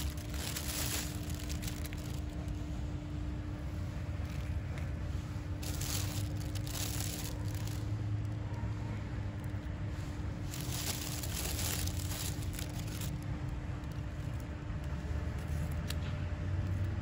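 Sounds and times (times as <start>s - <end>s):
plastic trays and bag crinkling: 0.0s - 2.6s, 5.6s - 8.0s, 10.5s - 13.2s
low outdoor rumble: 0.0s - 17.0s.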